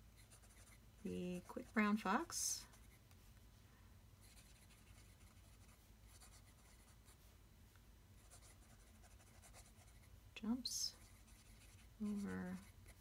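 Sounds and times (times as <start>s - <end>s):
pen scratching on paper: 0.2s - 0.8s, 4.2s - 7.2s, 8.2s - 10.1s, 11.0s - 13.0s.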